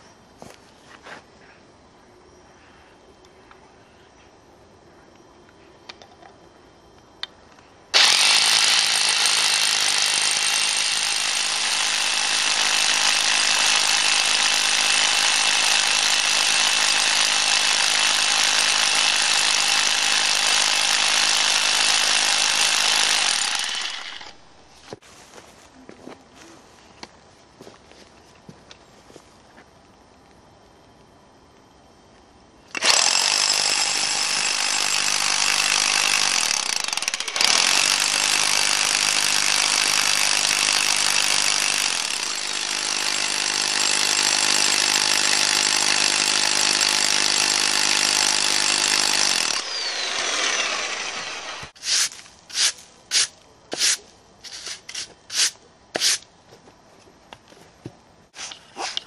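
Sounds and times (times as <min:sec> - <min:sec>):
rotary hammer drilling stone: 0:07.9 - 0:24.6, 0:32.7 - 0:56.2
brush scraping stone: 0:51.7 - 0:56.2, 0:58.3 - 0:59.0.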